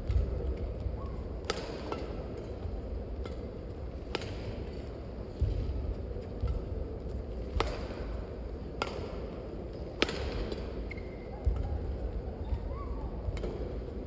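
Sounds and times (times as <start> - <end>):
low hum of hall: 0.0 - 14.0
racket hitting shuttlecock: 1.3 - 11.8, 13.3 - 13.8.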